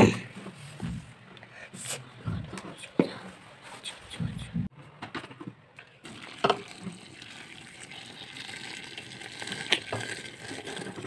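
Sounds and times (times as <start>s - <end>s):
water pouring into metal pot: 6.0s - 11.0s.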